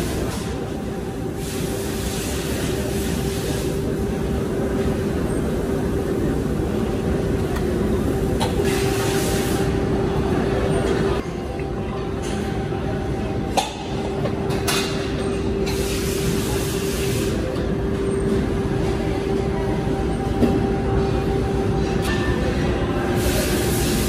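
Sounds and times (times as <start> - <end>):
machinery humming: 0.0 - 24.0.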